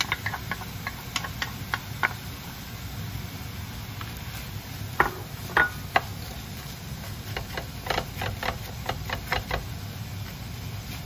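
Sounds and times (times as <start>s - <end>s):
spatula scraping frying pan: 5.8s - 9.7s.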